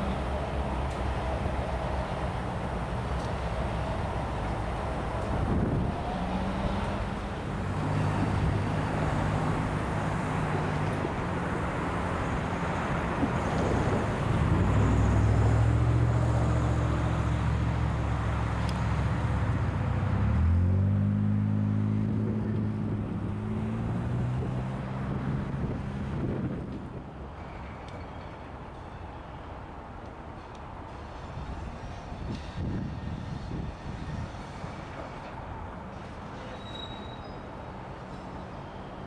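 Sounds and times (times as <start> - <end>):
diesel locomotive engine running: 0.0 - 20.8
wind noise on microphone: 4.1 - 16.6, 22.0 - 27.3, 31.1 - 35.6.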